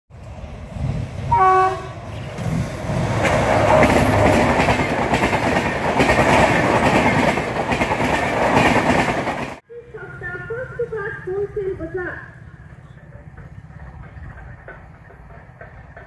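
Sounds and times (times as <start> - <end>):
train rushing past: 0.1 - 16.0
train horn blast: 1.3 - 2.0.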